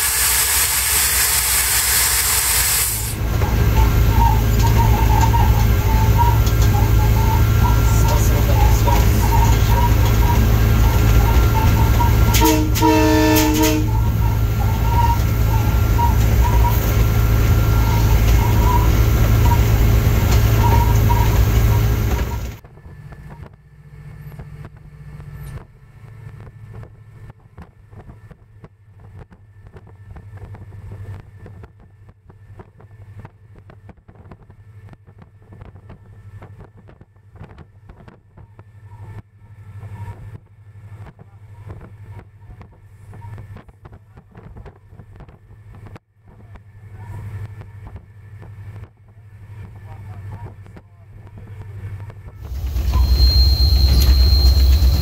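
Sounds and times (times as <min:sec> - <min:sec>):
low hum: 0:00.0 - 0:25.5, 0:51.2 - 0:55.0
diesel locomotive engine from cab: 0:00.0 - 0:33.9, 0:34.5 - 0:55.0.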